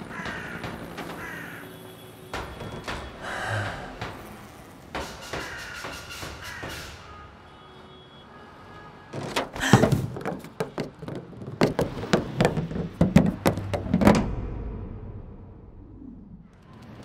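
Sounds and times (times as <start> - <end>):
sharp knocks and thuds: 9.2 - 15.0.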